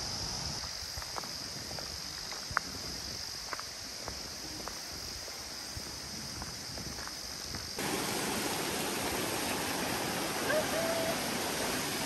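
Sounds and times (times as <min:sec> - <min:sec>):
steady outdoor hiss: 0:00.0 - 0:12.0
stream rushing over rocks: 0:07.8 - 0:12.0.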